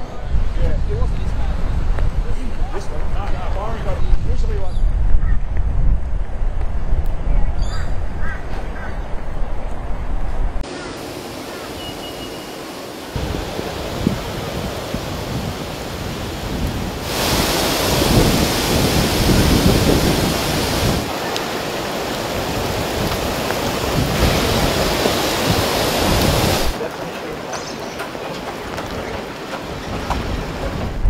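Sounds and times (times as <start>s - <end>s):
heavy rain: 10.6s - 31.0s.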